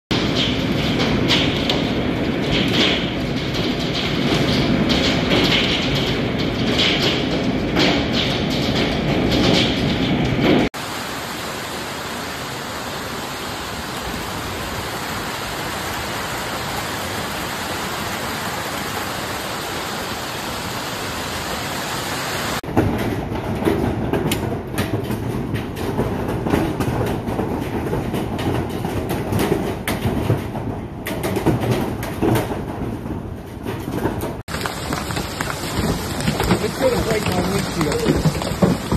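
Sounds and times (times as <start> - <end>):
hailstones striking sharply: 0.1 - 23.1, 34.5 - 38.9
heavy hail and rain falling: 0.1 - 38.9.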